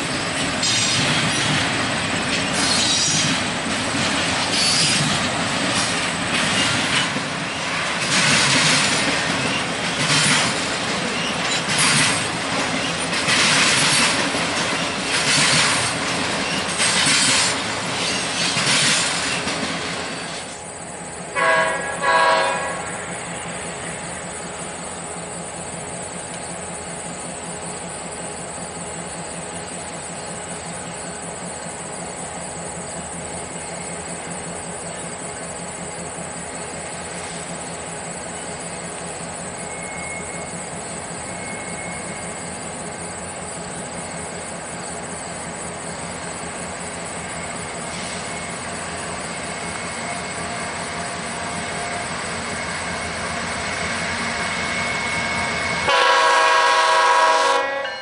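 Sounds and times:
freight train rumble: 0.0s - 58.0s
thin high squeal: 39.6s - 40.6s, 41.2s - 42.4s.

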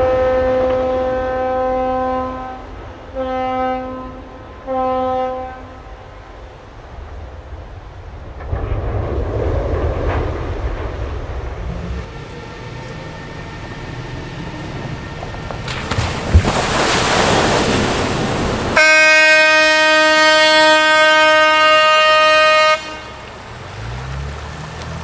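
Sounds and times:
long steady horn: 0.0s - 6.2s, 18.8s - 23.9s
water rushing and splashing: 5.6s - 25.0s
vehicle thumping into water: 15.4s - 18.8s.

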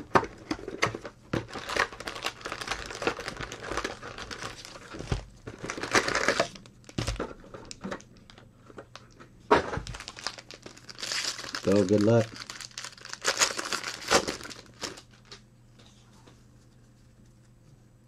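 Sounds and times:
foil packs crinkling and rustling: 0.0s - 15.4s.

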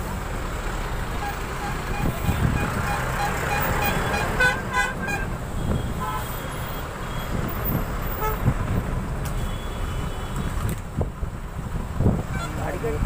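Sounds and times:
vehicle horns tooting: 1.2s - 7.4s, 8.0s - 8.5s, 9.3s - 10.6s, 12.3s - 12.8s.

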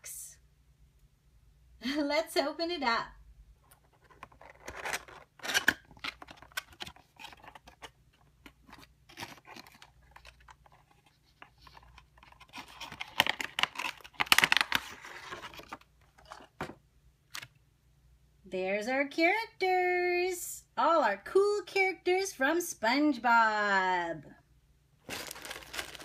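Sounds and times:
cardboard box being opened: 3.9s - 7.9s, 25.1s - 26.0s.

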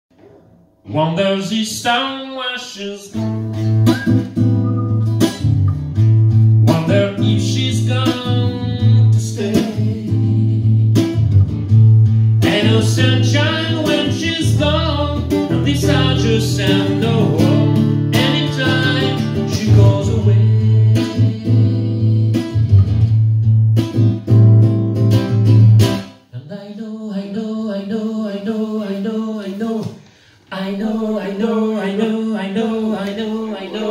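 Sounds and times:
man singing into a microphone: 0.9s - 3.3s, 6.6s - 11.0s, 12.4s - 22.7s
nylon-string guitar strummed: 3.1s - 26.2s.

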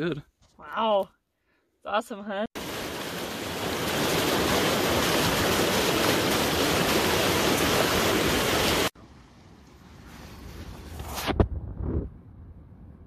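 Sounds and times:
stream rushing over rocks: 2.6s - 9.0s.

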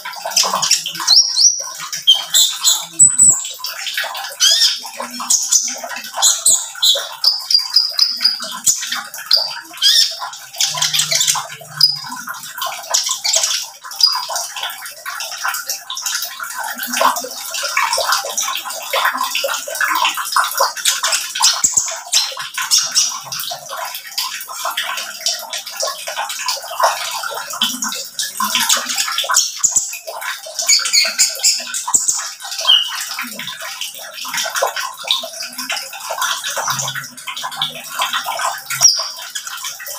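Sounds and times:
bird singing high chirps: 1.1s - 3.4s, 30.7s - 32.9s.

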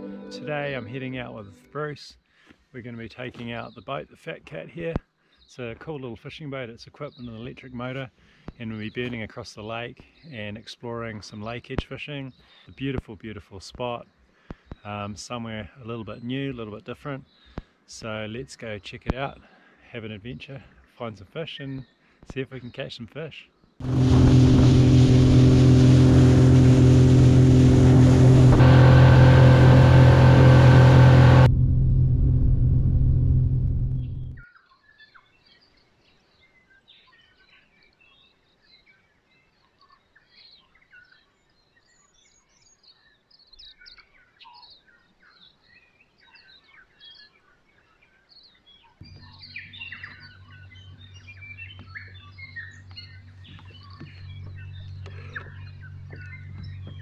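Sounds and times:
wind: 0.0s - 57.0s
water rushing: 23.8s - 31.5s
boat motor running: 23.8s - 34.4s, 49.0s - 57.0s
low motor hum: 23.8s - 34.4s, 49.0s - 57.0s
faint bird chirps: 34.3s - 57.0s.

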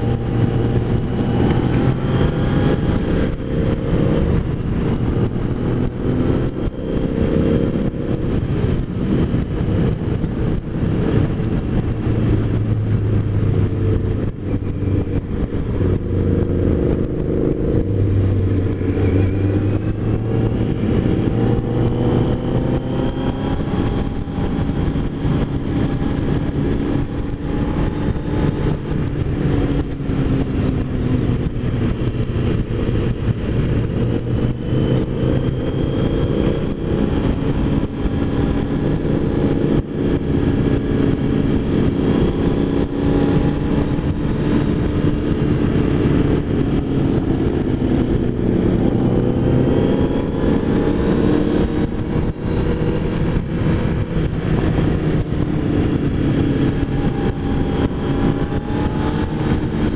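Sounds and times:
motorcycle engine running: 0.0s - 59.9s
wind on microphone: 0.0s - 59.9s.

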